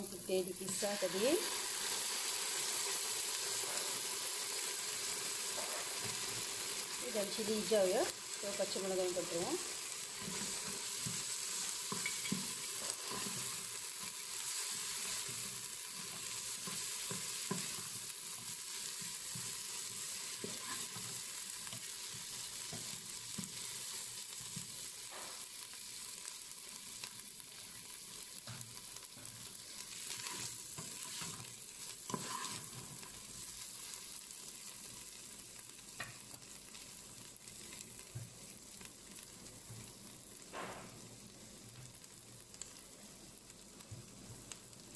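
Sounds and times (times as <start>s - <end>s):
onions sizzling in hot oil: 0.0s - 44.9s
wooden spoon scraping a pot: 10.2s - 17.9s, 19.0s - 21.8s, 30.0s - 31.5s, 32.1s - 33.2s.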